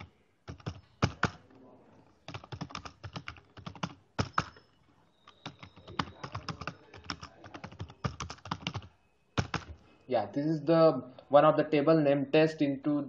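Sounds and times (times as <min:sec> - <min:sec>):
keyboard keys clicking: 0:00.0 - 0:01.4, 0:02.3 - 0:04.6, 0:05.4 - 0:09.8.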